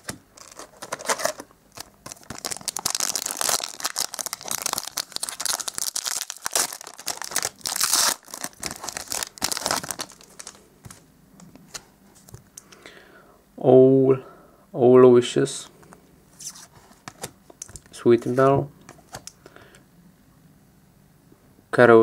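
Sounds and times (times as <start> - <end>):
foil wrapper crinkling and tearing: 0.0 - 11.0.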